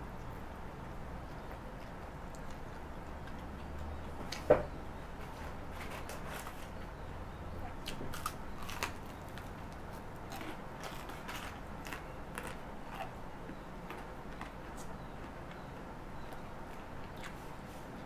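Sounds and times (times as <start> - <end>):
chewing clicks: 1.2 - 4.5
crisp crunching of fried food: 7.7 - 13.2.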